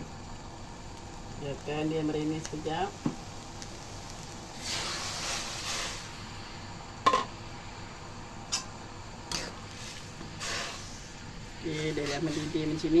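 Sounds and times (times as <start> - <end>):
broth hissing and bubbling in a wok: 0.0 - 13.0.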